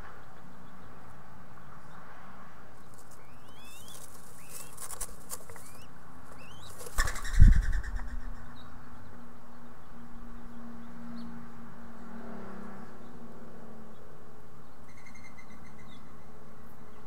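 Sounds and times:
dove wingbeats: 0:02.9 - 0:08.4.

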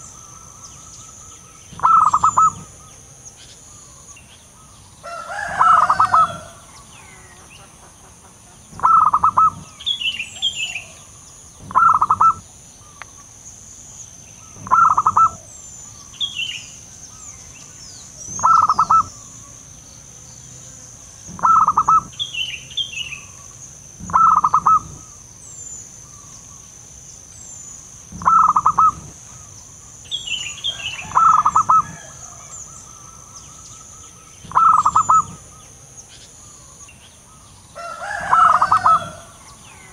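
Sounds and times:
small bird chirping: 0:00.0 - 0:07.8, 0:08.7 - 0:39.9
steady high hiss: 0:00.0 - 0:39.9
dove cooing: 0:01.7 - 0:02.9, 0:05.1 - 0:07.3, 0:08.8 - 0:09.8, 0:10.4 - 0:12.4, 0:14.5 - 0:15.5, 0:18.2 - 0:19.3, 0:21.3 - 0:22.2, 0:24.0 - 0:25.2, 0:28.1 - 0:29.5, 0:30.7 - 0:33.3, 0:34.4 - 0:35.6, 0:37.8 - 0:39.9.

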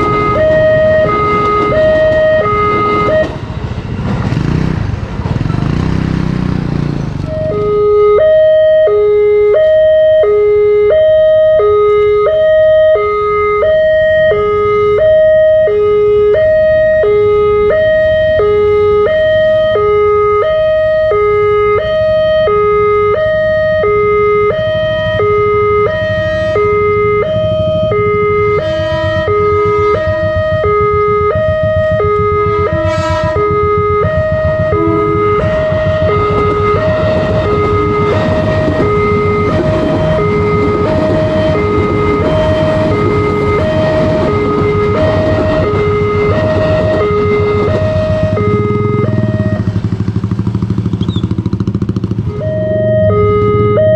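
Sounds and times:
level crossing alarm two-tone: 0:00.0 - 0:03.4, 0:07.3 - 0:49.8, 0:52.3 - 0:53.9
electric train rumbling past: 0:00.0 - 0:07.6, 0:25.9 - 0:53.8.

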